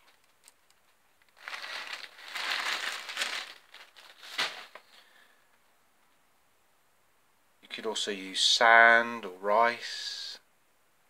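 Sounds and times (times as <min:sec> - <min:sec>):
sharp crackle: 0:00.0 - 0:04.9
craft materials rustling: 0:00.0 - 0:05.0.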